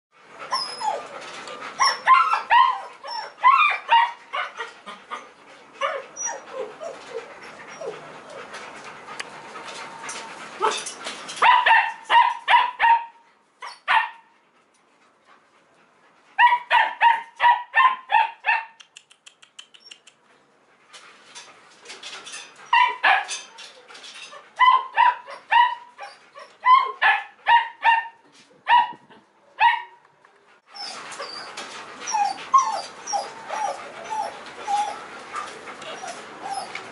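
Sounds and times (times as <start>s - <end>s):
puppy yelping and yipping: 0.5s - 1.1s, 1.8s - 8.5s, 22.6s - 23.4s, 24.3s - 28.0s, 30.7s - 35.1s, 35.8s - 36.8s.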